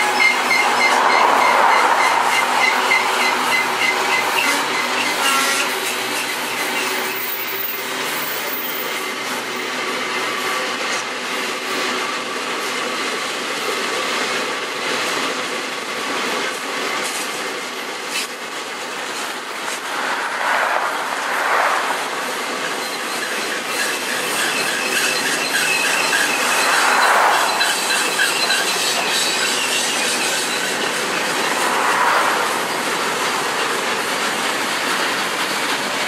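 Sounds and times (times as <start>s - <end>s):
high wheel squeal: 0.0s - 10.8s, 18.0s - 36.0s
freight train wheels clattering: 0.0s - 36.0s.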